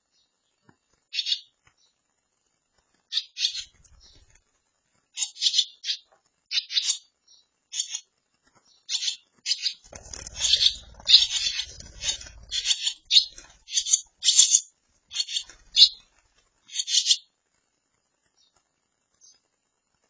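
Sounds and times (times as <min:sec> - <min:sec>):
wing flutter rumble: 0:03.6 - 0:04.4, 0:09.8 - 0:16.6
swallow chicks begging calls: 0:08.9 - 0:16.0.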